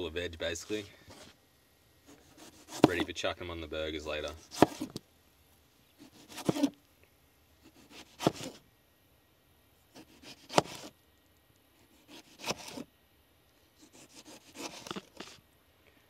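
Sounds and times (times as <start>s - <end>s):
knife slicing a tomato: 2.1s - 3.1s, 4.4s - 5.0s, 6.0s - 6.8s, 7.7s - 8.6s, 9.9s - 10.9s, 11.8s - 12.9s, 13.8s - 15.4s.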